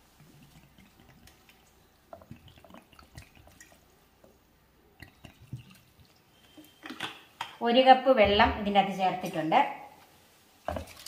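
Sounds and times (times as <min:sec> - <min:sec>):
water trickling into pan: 0:00.0 - 0:07.4.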